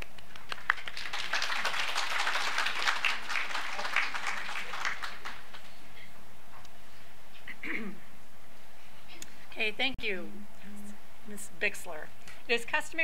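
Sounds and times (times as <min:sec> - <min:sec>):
crowd applauding: 0:00.0 - 0:05.7.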